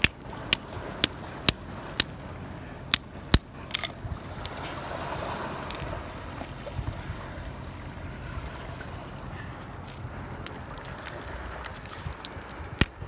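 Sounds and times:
wind and sea hiss: 0:00.0 - 0:13.0
snail shells cracking on rock: 0:02.9 - 0:04.0.

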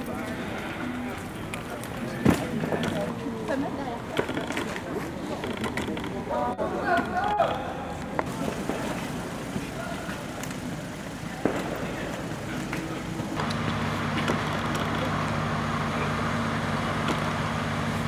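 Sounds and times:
street noise: 0:00.0 - 0:18.0
idling vehicle engine hum: 0:08.6 - 0:18.0.

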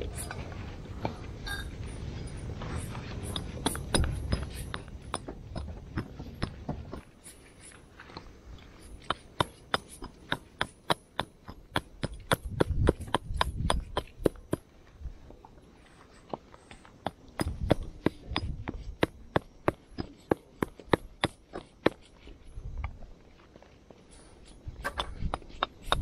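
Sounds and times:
hatchet knocking on wooden stake: 0:09.0 - 0:14.6.

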